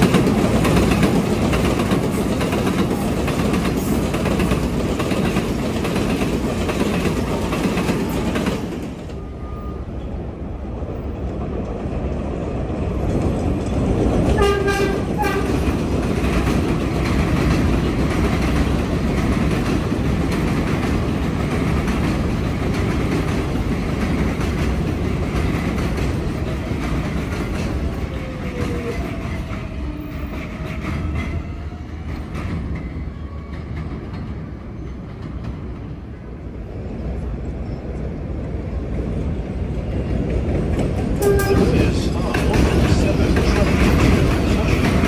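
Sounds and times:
subway train rumbling on track: 0:00.0 - 0:45.0.

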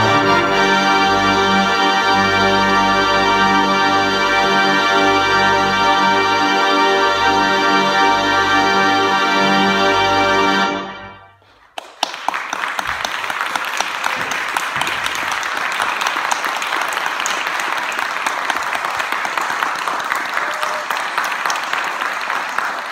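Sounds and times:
audience applauding: 0:11.4 - 0:22.9.

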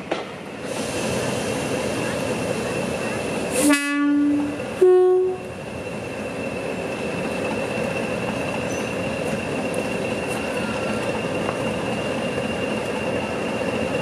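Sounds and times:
two-tone locomotive horn: 0:03.6 - 0:05.5.

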